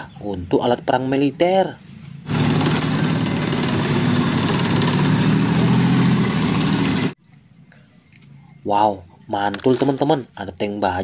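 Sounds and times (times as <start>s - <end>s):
tank engine running: 2.3s - 7.2s.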